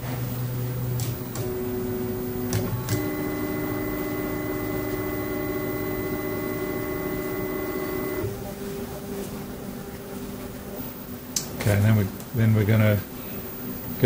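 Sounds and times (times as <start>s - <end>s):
stepper motor whine: 1.3s - 8.4s.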